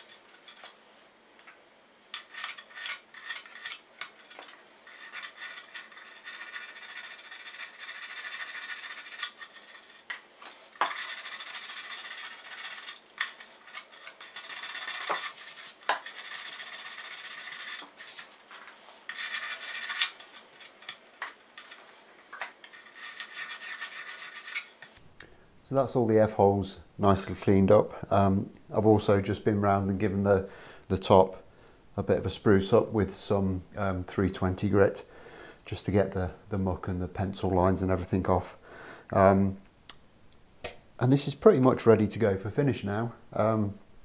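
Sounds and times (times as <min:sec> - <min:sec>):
sandpaper rubbing on wood: 0:04.8 - 0:20.9, 0:22.7 - 0:24.9.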